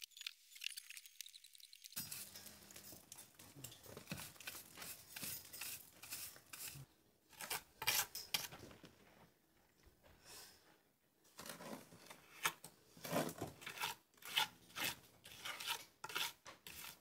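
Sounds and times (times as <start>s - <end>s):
hand tool scraping stone: 2.0s - 8.5s, 11.4s - 17.0s.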